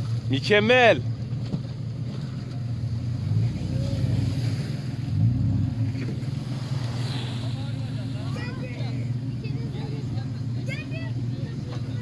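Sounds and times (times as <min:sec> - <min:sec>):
car engine running: 0:00.0 - 0:12.0.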